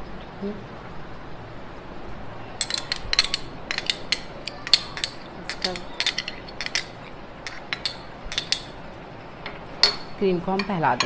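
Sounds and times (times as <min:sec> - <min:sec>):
metal spoon clinking on a dish: 0:02.6 - 0:08.8, 0:09.4 - 0:11.0.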